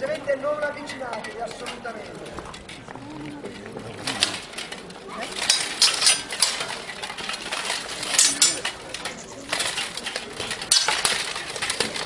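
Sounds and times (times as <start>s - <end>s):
armour clanking: 0.0s - 12.0s
swords clashing: 5.3s - 12.0s.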